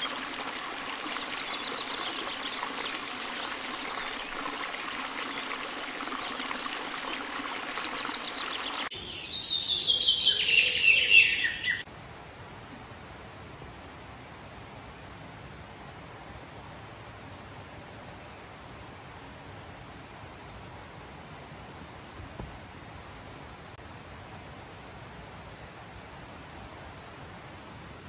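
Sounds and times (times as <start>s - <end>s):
small waterfall splashing: 0.0s - 8.9s, 22.0s - 27.4s
faint forest background: 0.0s - 28.0s.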